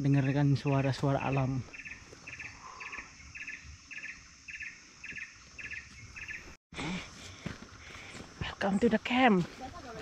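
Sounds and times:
insect chirping in pulsed bursts: 0.0s - 6.6s.

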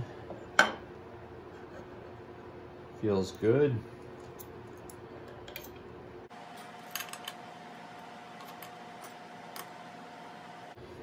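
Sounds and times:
steady hum: 0.0s - 11.0s.

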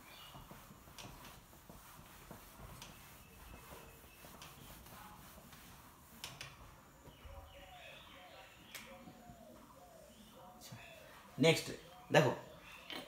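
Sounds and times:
duster rubbing on whiteboard: 0.0s - 7.1s.

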